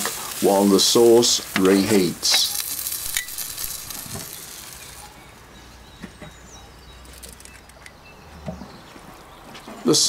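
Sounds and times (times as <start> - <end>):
sauce sizzling in a pan: 0.0 - 5.1.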